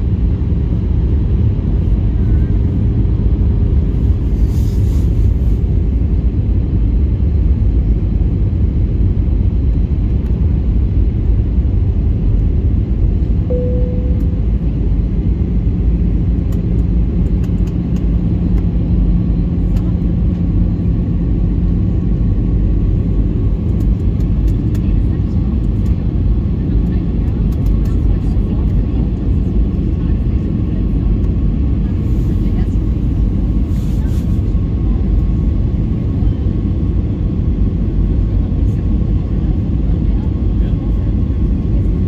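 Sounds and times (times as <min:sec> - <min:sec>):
airliner engines and airflow rumble: 0:00.0 - 0:42.0
faint steady hum: 0:13.2 - 0:22.2
cabin chime tone: 0:13.5 - 0:14.5.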